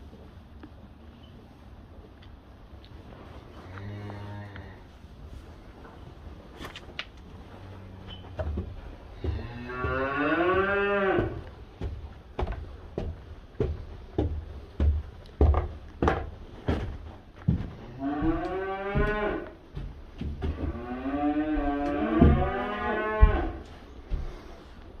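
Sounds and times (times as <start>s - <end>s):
footsteps on wooden floor: 8.2s - 24.9s
cattle mooing: 9.2s - 11.4s, 20.7s - 23.6s.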